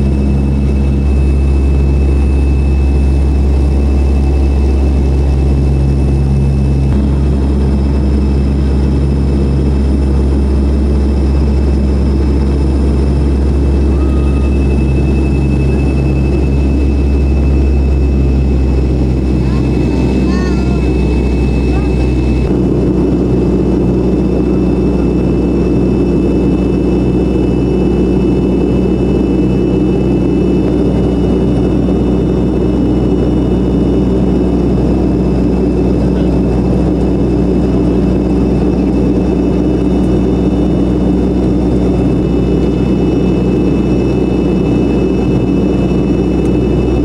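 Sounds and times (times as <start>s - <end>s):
airplane cabin engine drone: 0.0s - 47.0s
faint high whining tones: 13.5s - 22.5s.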